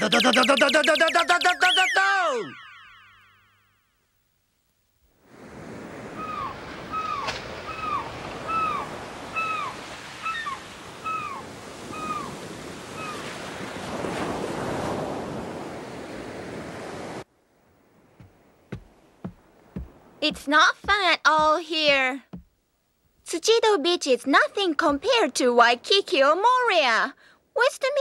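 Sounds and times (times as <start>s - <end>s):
seagulls calling: 0.0s - 3.0s, 6.1s - 13.4s
surf washing on beach: 5.2s - 17.3s
faint knocks: 18.2s - 22.5s.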